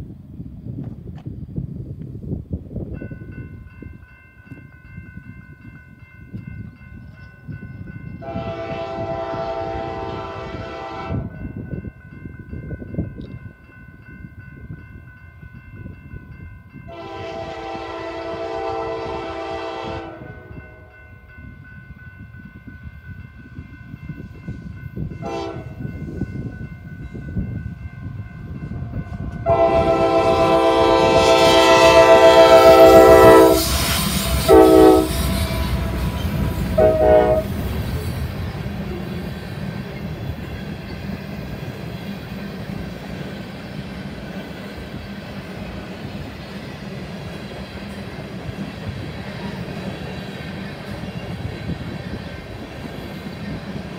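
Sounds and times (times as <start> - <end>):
crossing bell ringing: 2.9 - 43.6
locomotive air horn: 8.2 - 11.3, 16.9 - 20.9, 25.2 - 25.8, 29.4 - 36.1, 36.7 - 37.6
train wheels clicking: 30.5 - 53.9.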